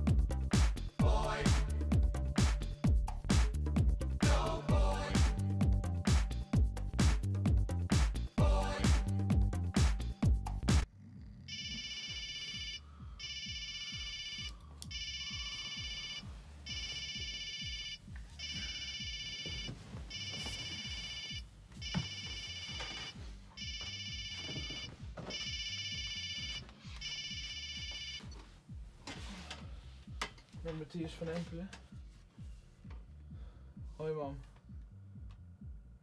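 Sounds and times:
telephone ringing: 11.5s - 28.3s
rustling and knocks in bed: 19.2s - 23.2s.

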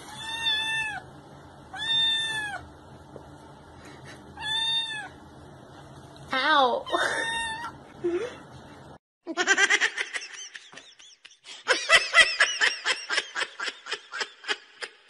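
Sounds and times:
kitten meowing: 0.1s - 1.0s, 1.7s - 2.6s, 4.4s - 5.1s, 6.9s - 7.8s
person laughing: 6.9s - 7.4s, 8.0s - 8.4s, 9.3s - 15.0s.

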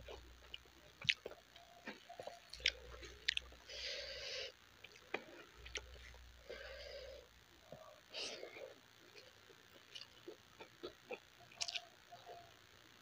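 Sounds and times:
close chewing: 0.0s - 3.6s, 9.1s - 12.4s.

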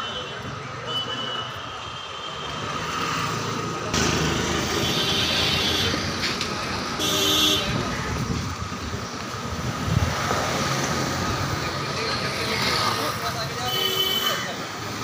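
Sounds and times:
street traffic passing: 0.0s - 15.0s
vehicle horn: 7.0s - 7.8s.

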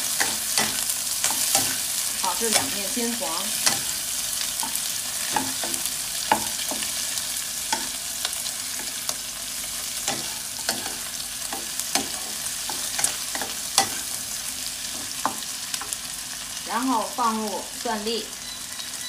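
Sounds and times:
spatula scraping and knocking pan: 0.0s - 4.0s, 4.6s - 9.2s, 10.0s - 14.2s
shrimp sizzling in hot oil: 0.0s - 19.0s.

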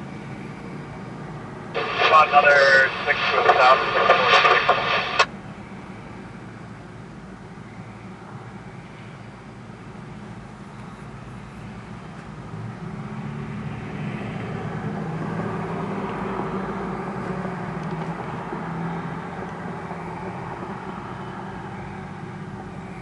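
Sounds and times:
diesel locomotive engine running: 0.0s - 13.2s.

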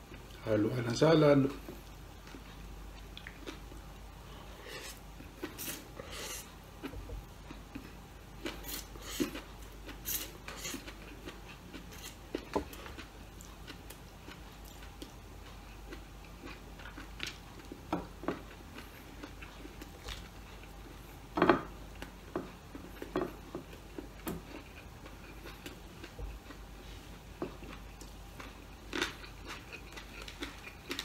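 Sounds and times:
chewing and lip smacks: 1.8s - 3.9s, 27.6s - 31.0s.

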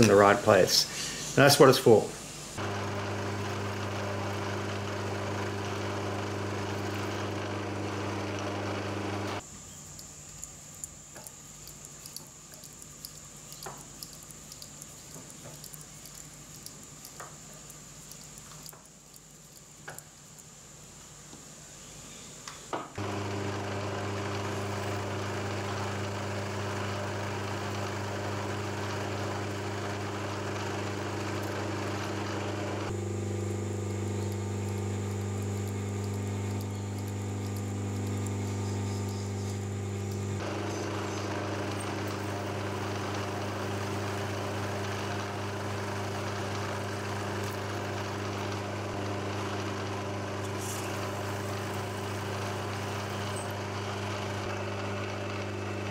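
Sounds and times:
drill drilling aluminium: 2.6s - 9.4s, 23.0s - 33.0s, 34.1s - 55.9s
milling machine motor running: 2.6s - 20.0s, 23.0s - 55.9s.

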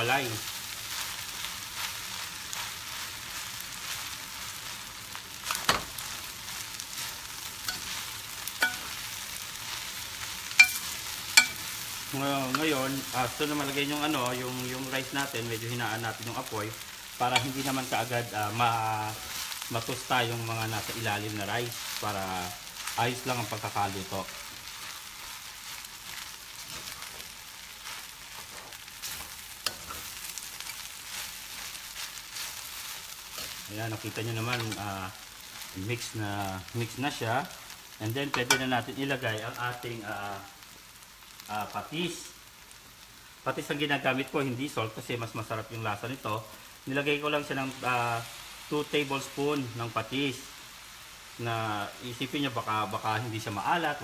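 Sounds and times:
rice sizzling in a pan: 0.0s - 54.0s
metal spoon scraping and clinking pan: 7.7s - 8.0s, 8.6s - 9.0s, 10.6s - 11.7s.

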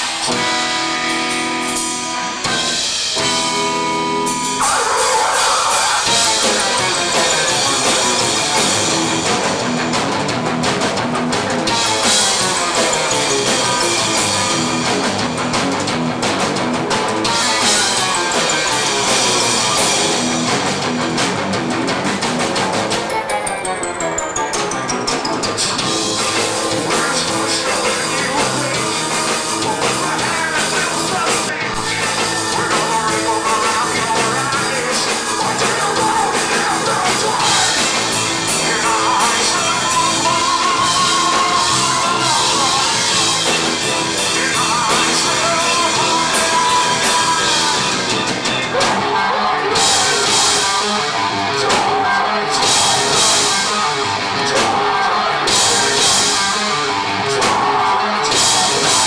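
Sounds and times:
metal band playing: 0.0s - 59.0s
person singing: 4.2s - 9.7s, 17.2s - 20.5s, 22.9s - 59.0s.

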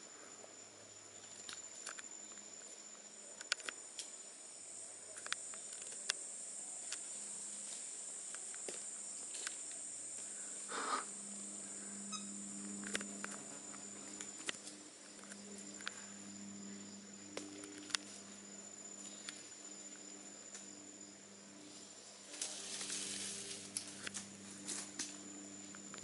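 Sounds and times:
insects droning: 0.0s - 26.0s
rustle: 5.2s - 16.2s, 21.6s - 26.0s.

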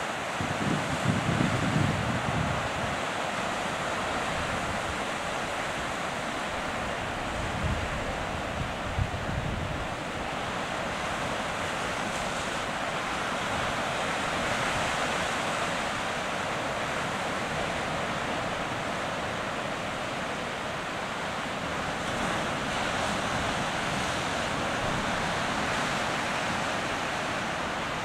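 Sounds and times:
sea surf breaking around rocks: 0.0s - 28.0s
wind buffeting microphone: 0.4s - 3.1s, 6.9s - 10.2s.

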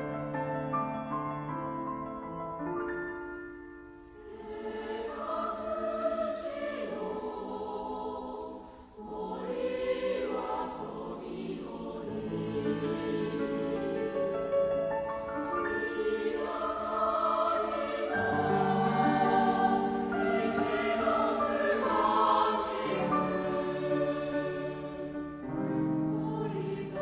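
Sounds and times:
piano accompaniment: 0.0s - 4.0s, 10.5s - 27.0s
mixed choir singing: 4.0s - 27.0s.

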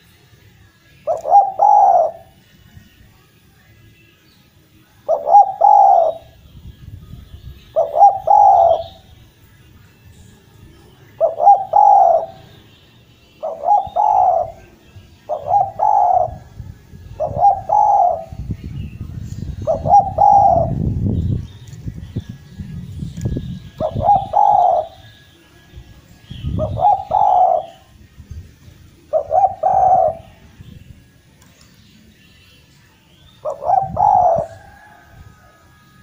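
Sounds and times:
small birds chirping: 0.0s - 34.8s
dove cooing: 1.0s - 2.4s, 5.0s - 6.4s, 7.7s - 9.0s, 11.1s - 12.5s, 13.4s - 18.4s, 19.5s - 20.8s, 23.8s - 25.0s, 26.4s - 27.9s, 29.1s - 30.4s, 33.4s - 35.6s.

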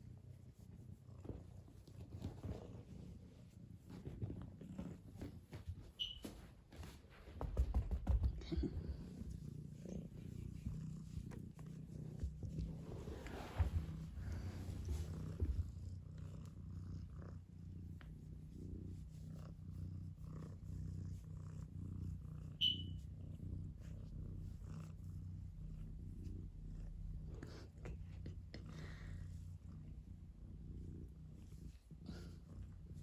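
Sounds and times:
cat purring: 0.0s - 33.0s
brief high squeak: 6.0s - 6.3s, 22.6s - 23.0s.

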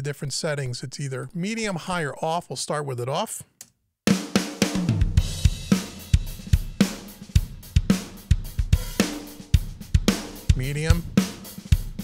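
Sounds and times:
drum kit playing rock beat: 4.1s - 12.0s.

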